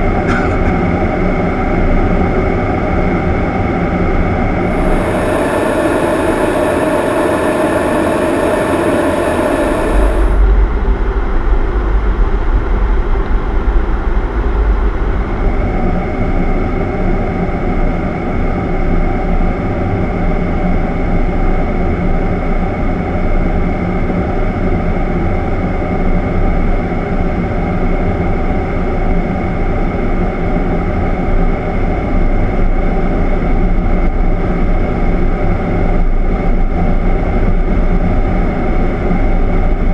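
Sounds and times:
aircraft engine drone: 0.0s - 39.9s
rush of air: 4.6s - 10.7s
deep rumble: 4.6s - 15.8s.

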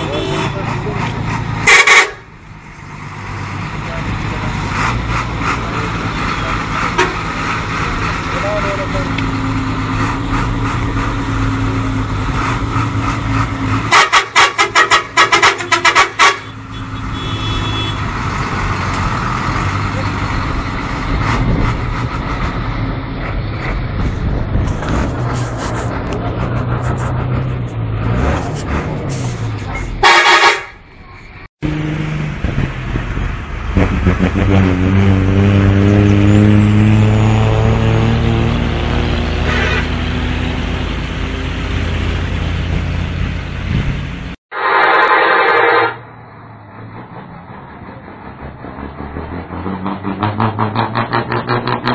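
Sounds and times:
loud horn blast: 0.0s - 0.6s, 1.6s - 2.3s, 13.9s - 18.1s, 30.0s - 30.8s, 39.3s - 40.2s, 44.5s - 46.1s
bus diesel engine running: 0.0s - 51.9s
short loud sharp blasts: 44.5s - 46.0s.

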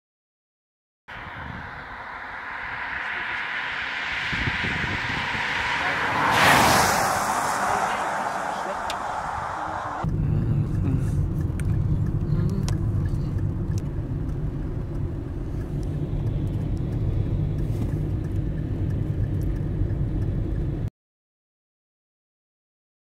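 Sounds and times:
car engine rumble: 1.1s - 20.9s
tyres on wet road: 1.1s - 20.9s
light ticks: 10.1s - 20.7s.

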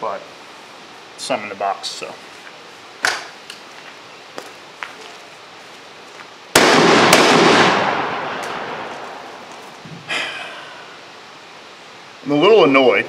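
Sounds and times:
shotgun shots with echo: 6.6s - 9.3s.

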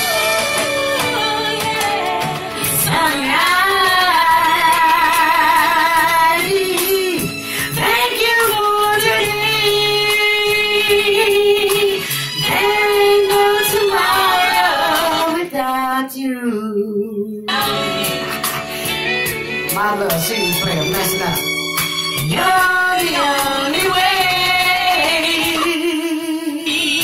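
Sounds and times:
recorded music with steady beat: 0.0s - 15.6s, 17.5s - 27.0s
woman singing with vibrato: 0.0s - 18.4s, 22.2s - 27.0s.

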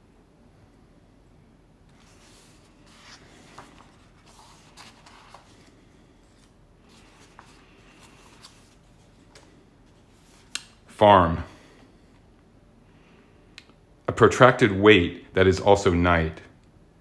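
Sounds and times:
book pages rustling: 1.9s - 10.8s.

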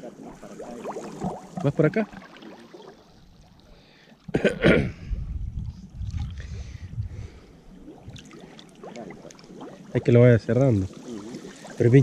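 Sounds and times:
water sloshing: 0.0s - 4.4s, 5.8s - 12.0s
man coughing: 4.3s - 5.1s.

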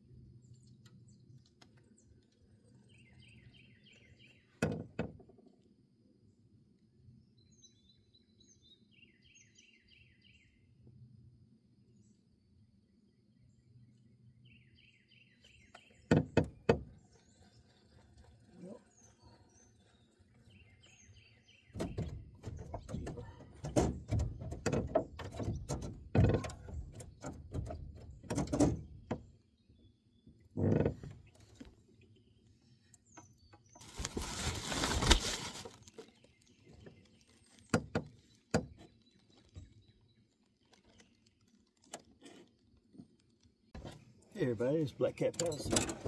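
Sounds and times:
knocks and thunks in boat: 4.6s - 5.5s, 15.7s - 18.4s, 21.7s - 29.4s, 30.3s - 31.8s, 37.7s - 39.8s, 45.3s - 46.0s
rustling: 33.8s - 37.7s.

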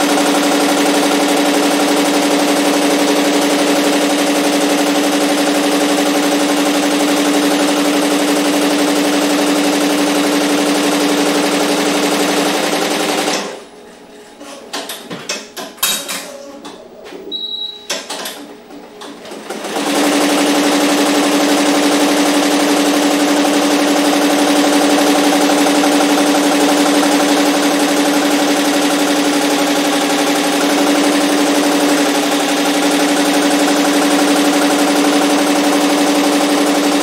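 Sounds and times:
short high beep: 17.2s - 18.0s.

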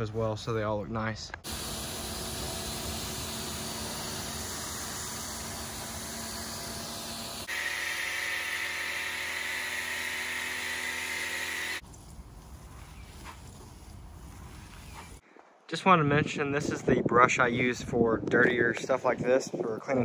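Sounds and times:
foam cannon spraying: 1.4s - 11.8s
low motor hum: 1.4s - 11.8s
pressure washer spraying: 1.4s - 11.8s.

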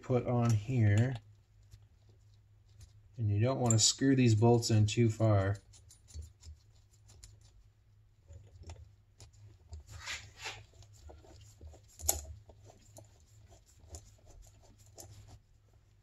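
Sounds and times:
metal clicks and scrapes: 8.3s - 15.4s.

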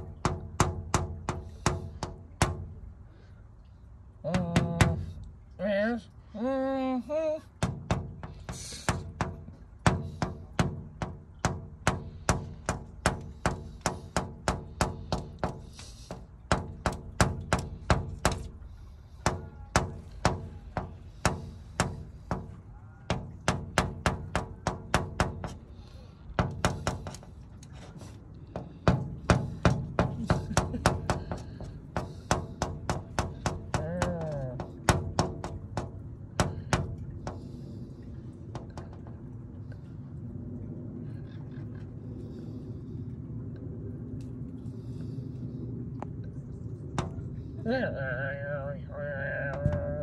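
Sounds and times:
bird beak tapping on glass: 0.0s - 2.8s, 7.6s - 18.6s, 19.2s - 25.7s, 28.6s - 37.5s.

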